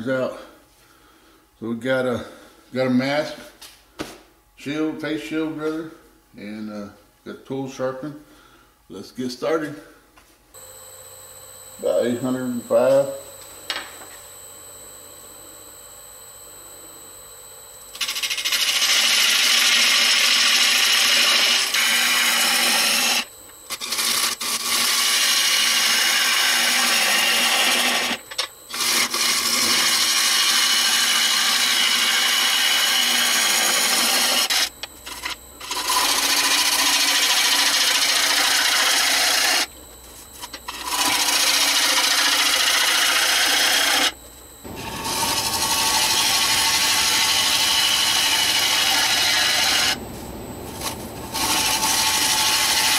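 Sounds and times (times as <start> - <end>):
gouge cutting spinning wood: 18.0 - 39.7, 40.3 - 52.9.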